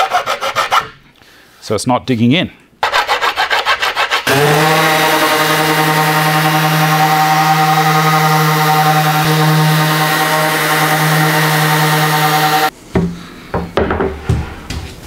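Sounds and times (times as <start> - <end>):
power tool motor running: 4.3 - 12.7.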